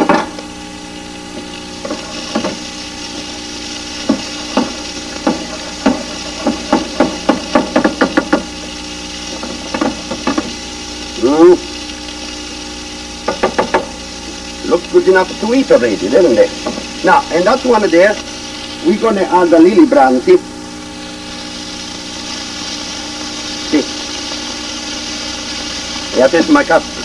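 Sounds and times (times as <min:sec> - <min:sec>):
wooden spoon knocking on pan: 0:00.0 - 0:00.4, 0:01.8 - 0:02.6, 0:04.0 - 0:08.6, 0:09.3 - 0:10.6, 0:13.2 - 0:14.0, 0:16.6 - 0:17.0
steady hum: 0:00.0 - 0:27.0.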